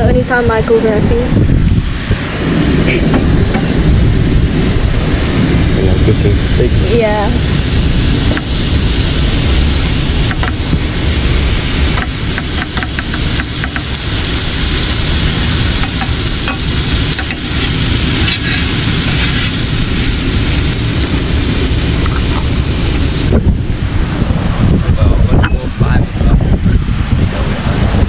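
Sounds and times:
wind rumble on microphone: 0.0 - 28.0
steaks sizzling in frying pan: 6.8 - 23.3
knife scraping pan: 18.2 - 19.6.

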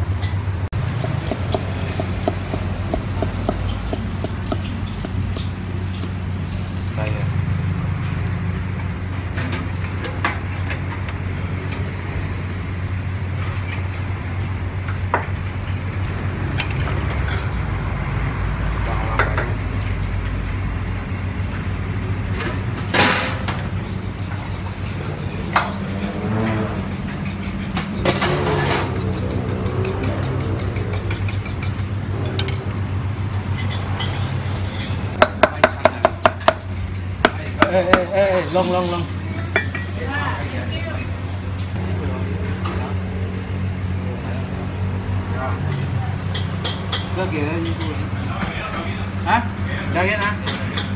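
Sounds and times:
road traffic rumble: 0.0 - 50.9
cleaver chopping on wooden block: 0.9 - 5.5
metal spoon clinking on plates: 16.6 - 17.1, 32.3 - 32.8.

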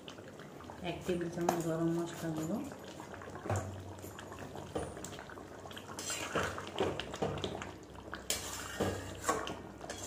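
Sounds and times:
metal spatula scraping pan: 6.0 - 6.6, 8.3 - 10.0.

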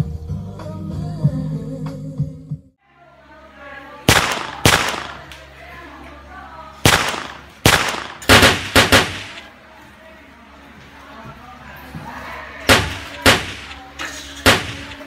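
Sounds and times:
gunshots with echo: 4.1 - 5.3, 6.8 - 9.5, 12.7 - 15.0.

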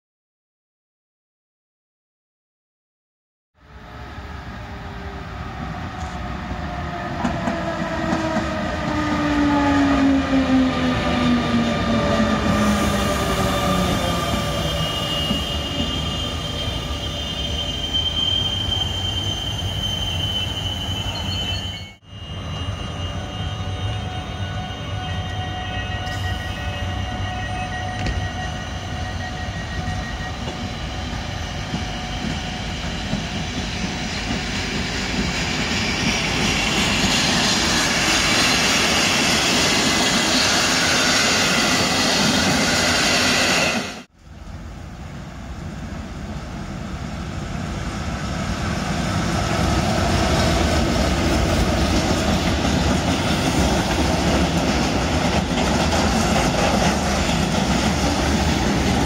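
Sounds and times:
train wheels rumbling and clattering: 5.6 - 16.9, 29.8 - 44.1, 48.4 - 59.0
thin high squeal: 12.8 - 33.0
electric locomotive motor whine: 20.5 - 34.9.

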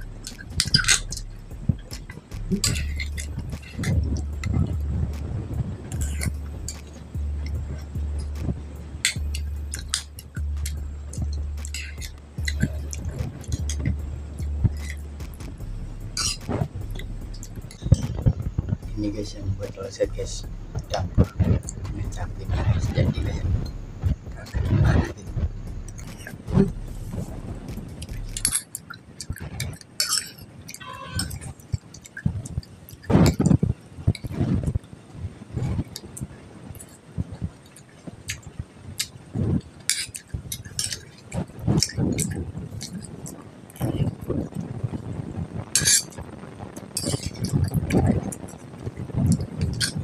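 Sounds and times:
chewing: 0.0 - 5.2, 5.9 - 15.6, 35.6 - 44.6
low hum: 0.0 - 28.6
chewing and wet mouth sounds: 0.0 - 34.9, 35.6 - 50.0.

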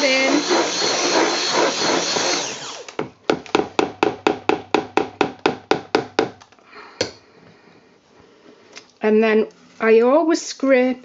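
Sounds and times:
stick blender running: 0.0 - 3.0.

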